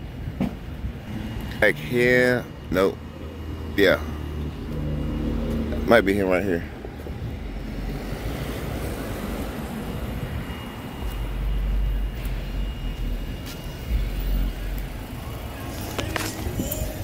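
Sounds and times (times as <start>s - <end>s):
car engine and tyres on road: 0.0s - 17.0s
heavy low rumbles: 6.6s - 15.6s.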